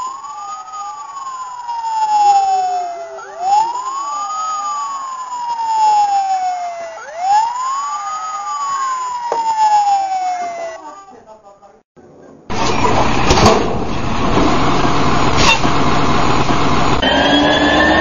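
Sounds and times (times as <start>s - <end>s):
toy fire engine wail siren: 0.0s - 11.2s.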